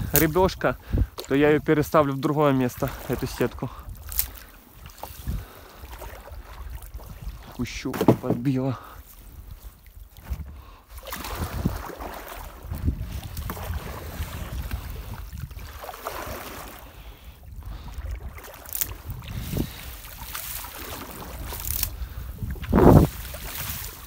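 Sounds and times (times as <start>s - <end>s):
wind rumbling on microphone: 0.0s - 24.0s
water splashing and dripping: 17.7s - 24.0s.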